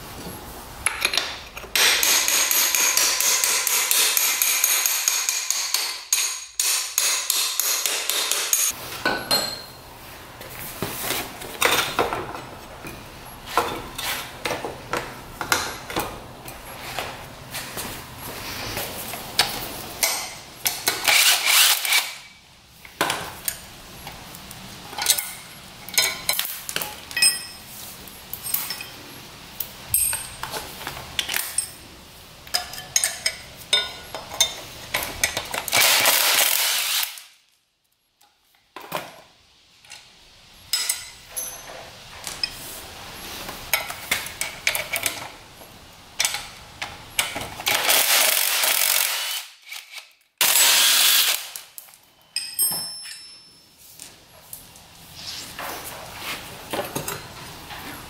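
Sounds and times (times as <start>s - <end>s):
impact driver hammering bolts: 1.7s - 8.7s
metallic clinks of wrench and bolts: 27.1s - 27.7s, 29.9s - 30.5s, 40.7s - 41.8s, 52.2s - 53.7s.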